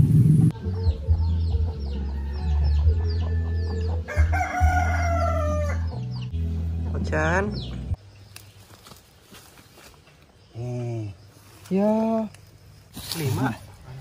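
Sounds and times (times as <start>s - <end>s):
low hum: 0.0s - 0.6s
chickens peeping: 0.5s - 6.4s.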